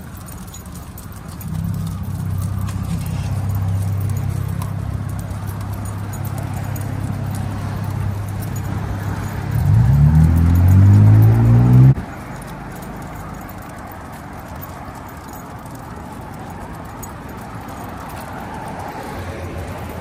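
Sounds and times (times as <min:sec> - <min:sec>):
dog claws and leash clicking: 0:00.0 - 0:20.0
road traffic drone: 0:00.0 - 0:20.0
vehicle engine accelerating: 0:00.7 - 0:14.8.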